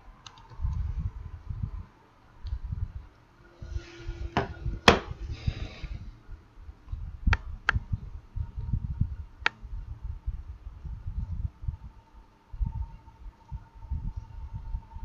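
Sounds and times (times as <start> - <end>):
low uneven rumble: 0.0 - 15.0.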